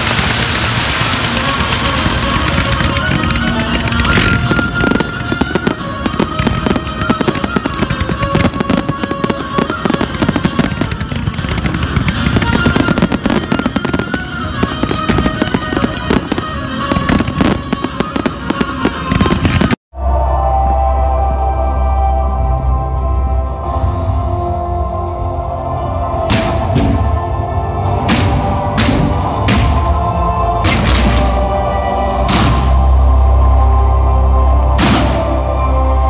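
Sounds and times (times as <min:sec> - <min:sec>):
fireworks bangs and crackling: 0:00.0 - 0:19.8
music playing: 0:00.0 - 0:36.0.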